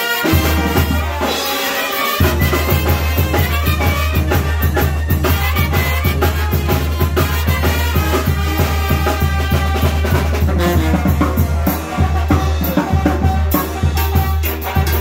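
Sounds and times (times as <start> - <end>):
brass band playing dance music: 0.0 - 15.0
drums beating: 0.0 - 15.0
sousaphone bass: 2.2 - 7.0.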